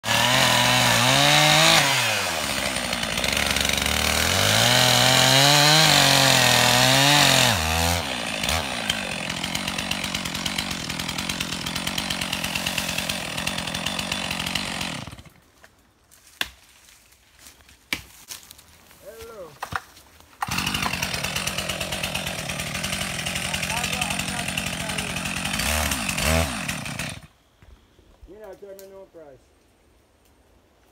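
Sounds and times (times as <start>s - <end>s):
chainsaw cutting wood: 0.0s - 15.4s, 19.6s - 27.3s.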